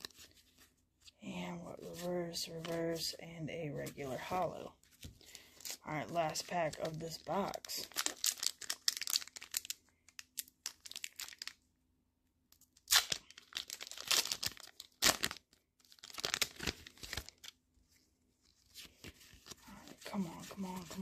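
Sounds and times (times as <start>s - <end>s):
foil wrapper tearing: 5.3s - 11.6s, 12.8s - 17.6s.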